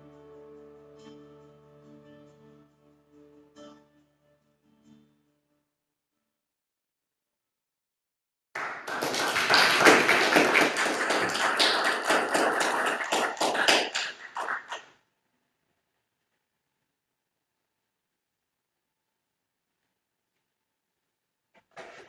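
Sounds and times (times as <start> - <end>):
congregation applauding: 8.6 - 15.0.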